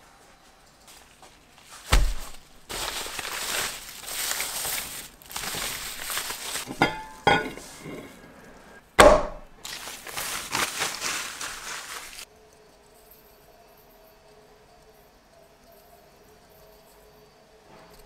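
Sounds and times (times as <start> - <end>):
paper wrapping crinkling: 0.9 - 7.8, 9.6 - 12.3
heavy thump: 1.9 - 2.5
steel bowl clinking on table: 6.7 - 8.2.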